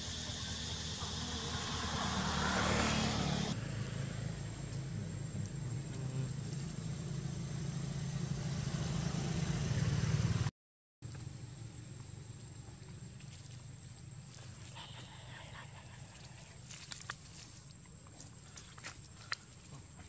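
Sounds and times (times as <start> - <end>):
vehicle passing: 0.0 - 10.5
low engine hum: 0.0 - 20.0.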